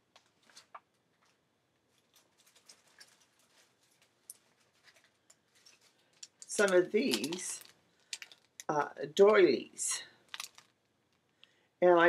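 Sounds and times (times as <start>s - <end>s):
paper and cardstock rustling: 1.9s - 8.5s.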